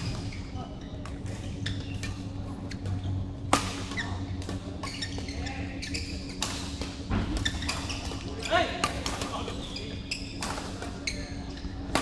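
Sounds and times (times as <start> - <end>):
low steady hum: 0.0 - 12.0
racket hitting shuttlecock: 3.5 - 4.6.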